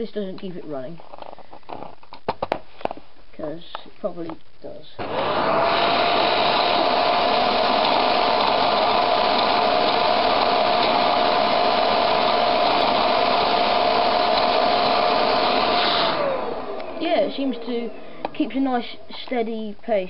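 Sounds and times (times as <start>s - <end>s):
vacuum cleaner running: 5.0s - 18.6s.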